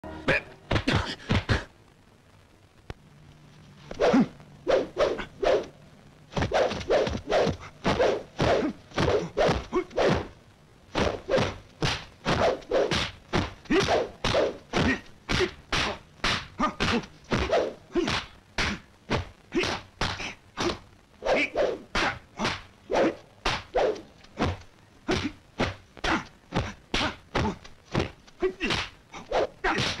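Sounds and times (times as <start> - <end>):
staff strikes and blows: 6.3 - 10.3, 10.9 - 30.0.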